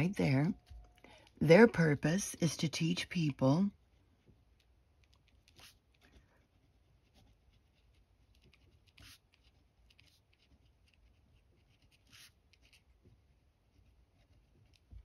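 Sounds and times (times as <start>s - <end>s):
pen scratching on paper: 5.0s - 15.0s.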